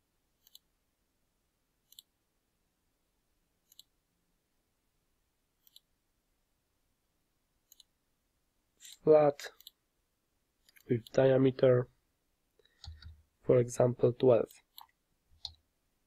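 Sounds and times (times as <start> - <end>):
computer mouse button clicking: 12.8 - 13.2.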